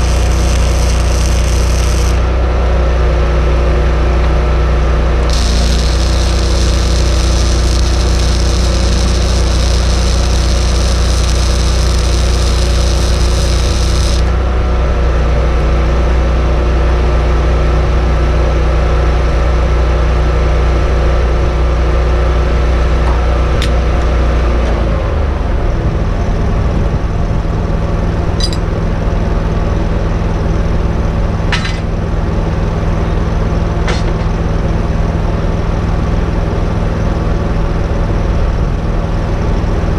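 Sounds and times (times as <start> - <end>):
sharp clicks: 0.0 - 2.2, 5.2 - 14.3
welding arc crackling and hissing: 0.0 - 2.3, 5.2 - 14.4
welder engine running: 0.0 - 2.8, 5.0 - 15.1.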